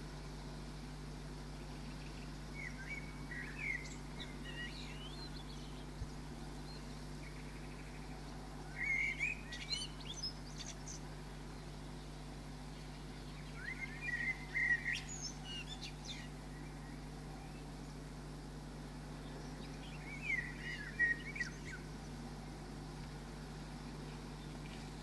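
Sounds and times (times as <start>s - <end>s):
steady low hum: 0.0s - 25.0s
songbird warbling: 1.9s - 11.1s, 12.7s - 18.0s, 19.2s - 22.2s.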